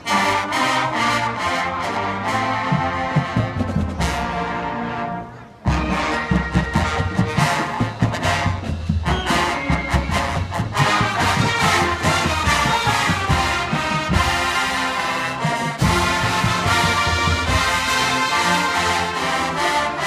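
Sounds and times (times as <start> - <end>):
marching band brass chords: 0.0 - 20.0
percussion hits: 5.7 - 18.9.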